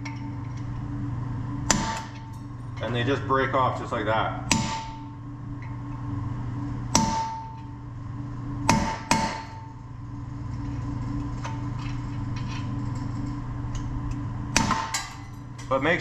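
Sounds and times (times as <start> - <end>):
steady low hum: 0.0 - 16.0
hammer striking metal punch: 1.7 - 2.4, 4.5 - 5.2, 6.9 - 7.7, 8.6 - 9.7, 14.5 - 15.3.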